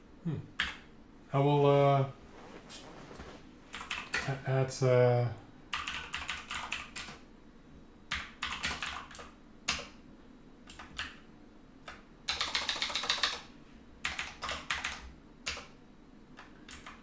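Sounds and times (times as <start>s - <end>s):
typing on a keyboard: 3.7s - 4.3s, 5.8s - 7.2s, 8.1s - 9.9s, 10.7s - 11.2s, 11.9s - 13.4s, 14.0s - 15.7s, 16.4s - 17.0s.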